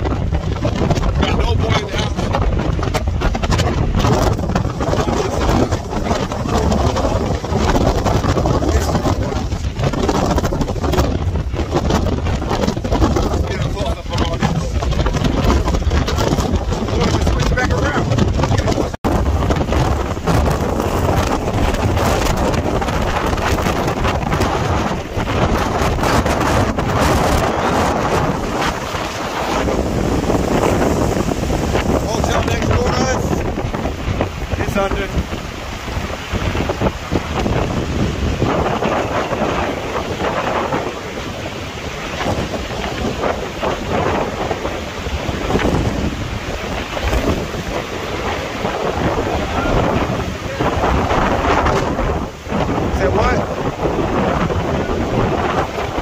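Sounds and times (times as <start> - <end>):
rain rushing: 0.0 - 56.0
strong wind buffeting microphone: 0.0 - 56.0.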